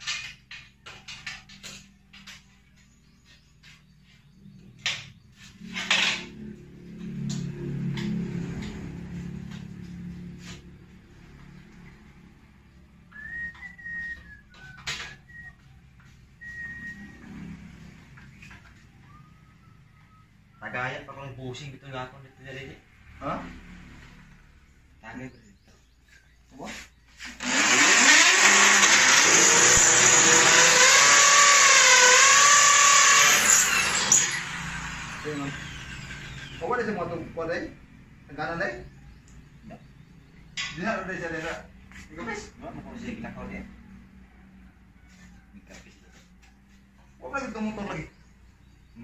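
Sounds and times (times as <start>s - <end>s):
person whistling: 13.1s - 15.6s, 16.4s - 17.2s
power drill running: 27.3s - 37.2s.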